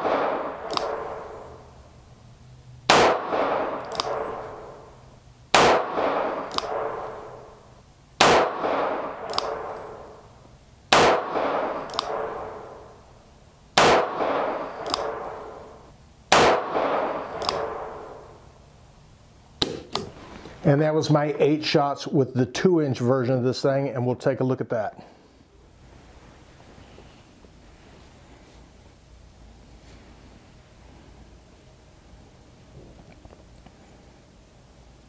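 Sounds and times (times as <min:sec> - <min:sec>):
revolver shots ringing in a room: 0:00.0 - 0:02.1, 0:02.8 - 0:18.7, 0:19.6 - 0:20.2.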